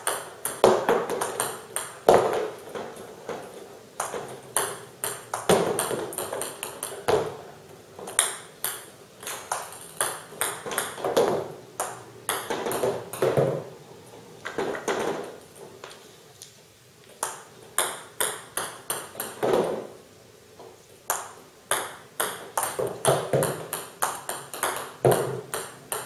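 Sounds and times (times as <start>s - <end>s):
table tennis paddle strikes and bounces: 0.0s - 7.4s, 8.0s - 13.7s, 14.5s - 15.4s, 17.2s - 19.9s, 21.1s - 26.0s
balls knocking on cardboard: 0.1s - 7.4s, 21.1s - 26.0s.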